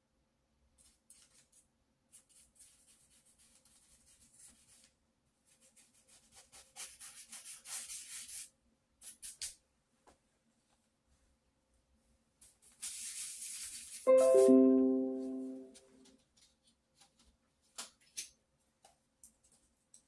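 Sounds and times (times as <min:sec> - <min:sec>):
paintbrush rubbing on paper: 0:12.5 - 0:14.0.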